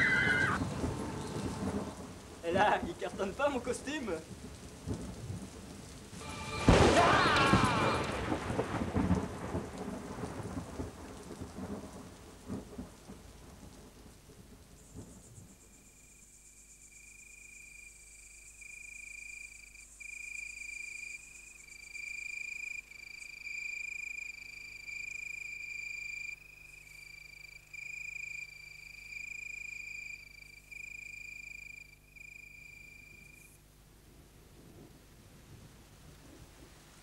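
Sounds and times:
cricket trilling: 0:14.8 - 0:33.6.

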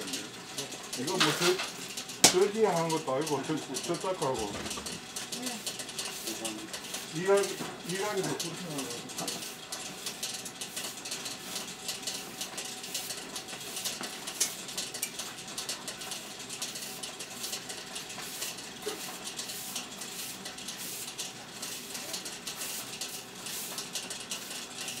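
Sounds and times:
drum clicking and rattling: 0:00.0 - 0:25.0
machine crackling hiss: 0:16.7 - 0:25.0.

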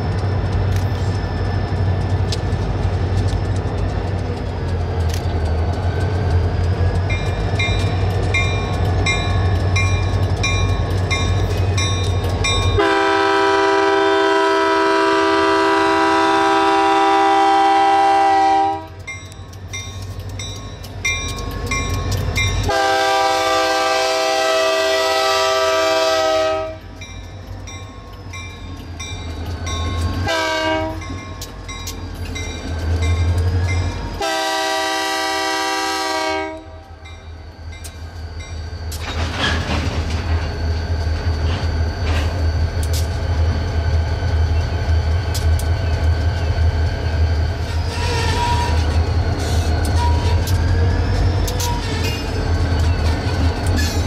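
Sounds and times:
locomotive horn blasts: 0:12.8 - 0:19.0, 0:22.7 - 0:26.9, 0:30.3 - 0:31.1, 0:34.2 - 0:36.9.

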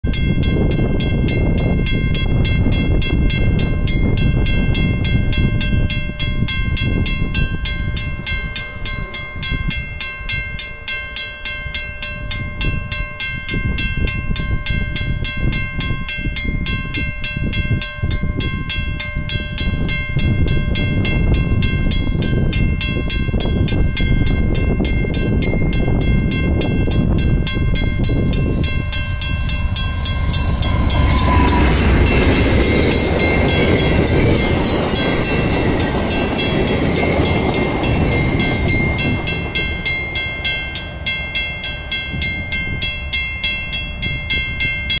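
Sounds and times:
level crossing warning bell: 0:00.0 - 0:45.0
diesel locomotive rumble: 0:13.6 - 0:45.0.

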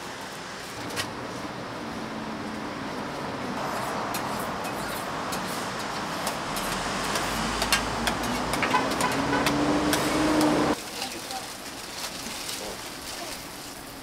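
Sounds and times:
vehicle engine rumbling: 0:00.0 - 0:14.0
sharp clicks and taps: 0:05.3 - 0:10.6.

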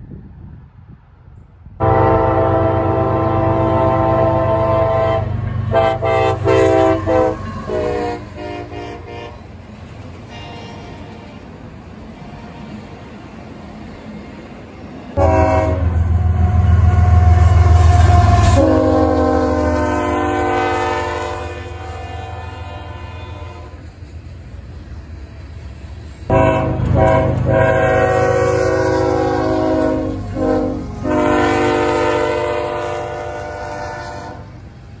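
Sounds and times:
train rumbling past: 0:00.0 - 0:35.0
locomotive air horn blasts: 0:01.8 - 0:09.5, 0:10.3 - 0:11.2, 0:15.2 - 0:23.9, 0:26.3 - 0:34.6.

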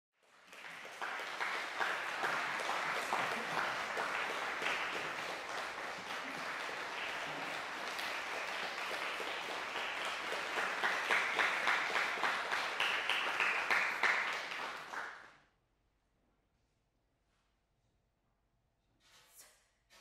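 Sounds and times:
audience applauding: 0:00.2 - 0:15.3.

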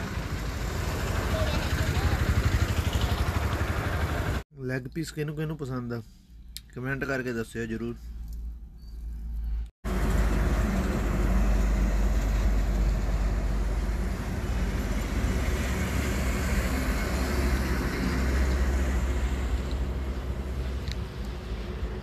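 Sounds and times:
truck driving on highway: 0:00.0 - 0:04.4, 0:09.6 - 0:22.0.

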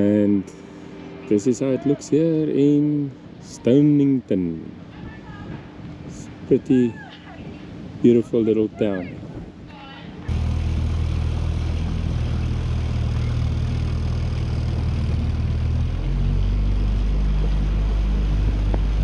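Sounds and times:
outboard motor running: 0:10.3 - 0:19.0.

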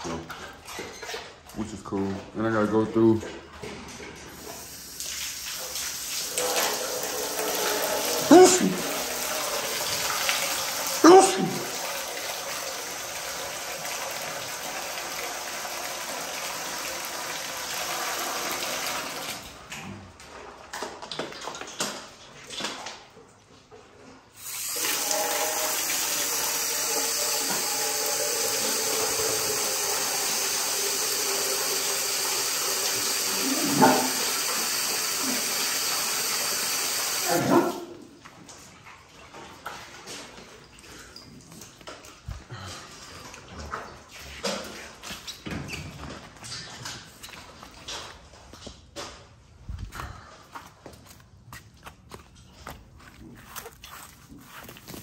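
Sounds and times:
garden hose spraying water: 0:04.4 - 0:19.3, 0:24.4 - 0:37.7
dog barking: 0:33.7 - 0:34.3, 0:37.3 - 0:37.9.

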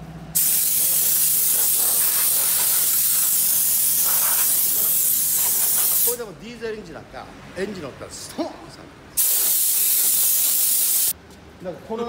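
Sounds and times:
compressed air hissing: 0:00.4 - 0:06.2, 0:09.2 - 0:11.2.

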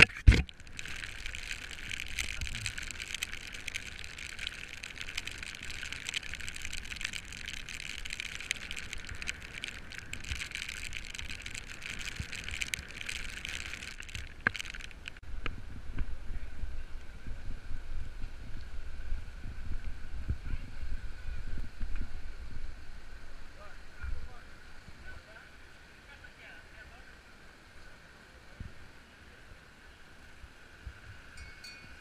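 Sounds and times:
bike tyres hissing on wet road: 0:00.0 - 0:25.4.

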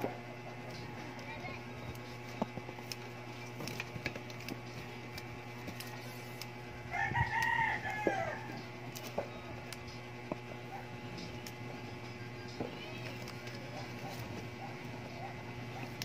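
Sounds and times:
rooster crowing: 0:06.8 - 0:08.7.

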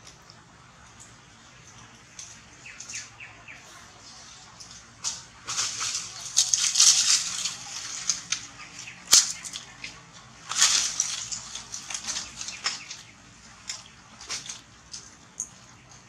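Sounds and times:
leaves and branches rustling: 0:00.0 - 0:16.0
branch snapping: 0:04.6 - 0:15.1.

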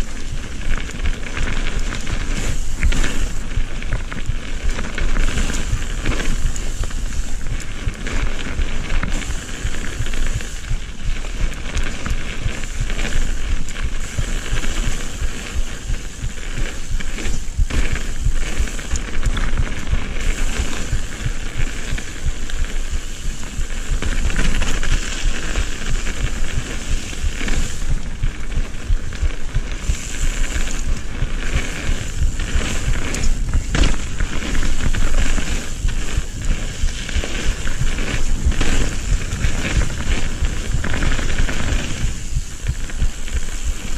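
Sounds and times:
bike knocks and rattles: 0:00.0 - 0:43.9
bike tyre rumble over dirt: 0:00.0 - 0:43.9
wind rush on microphone: 0:00.0 - 0:43.9.

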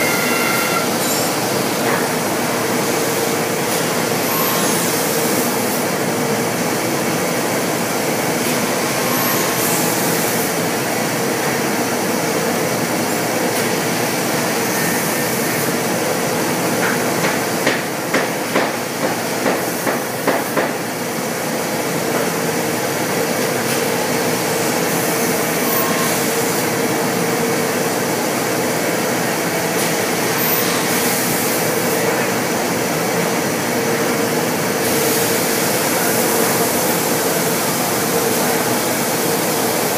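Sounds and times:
cnc machine running: 0:00.0 - 0:16.9, 0:24.1 - 0:39.9
sharp loud knocks: 0:17.2 - 0:20.8.

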